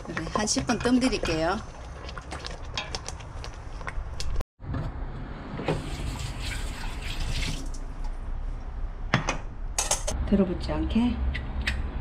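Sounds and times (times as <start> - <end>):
kitchen clicks and knocks: 9.1 - 10.2.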